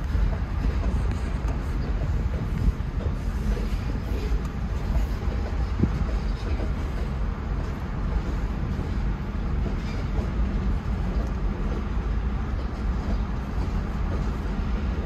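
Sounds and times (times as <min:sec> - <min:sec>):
train wheels on rails: 0:00.0 - 0:15.0.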